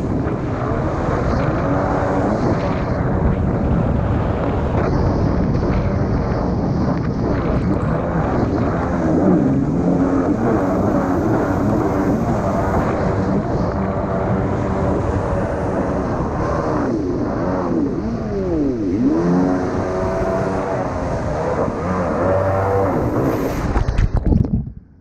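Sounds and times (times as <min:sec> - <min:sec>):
jet ski engine running: 0:00.0 - 0:24.5
water rushing past hull: 0:07.1 - 0:24.4.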